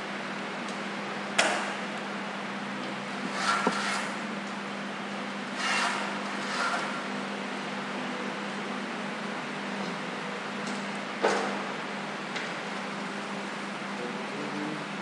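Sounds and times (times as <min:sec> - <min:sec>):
steady hum: 0:00.0 - 0:15.0
wooden sticks scraping: 0:03.3 - 0:04.2.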